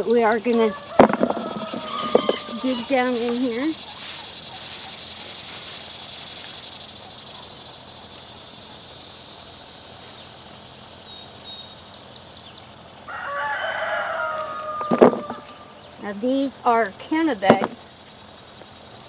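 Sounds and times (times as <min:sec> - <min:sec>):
insects buzzing: 0:00.0 - 0:19.0
rooster crowing: 0:00.6 - 0:05.0, 0:13.1 - 0:15.9.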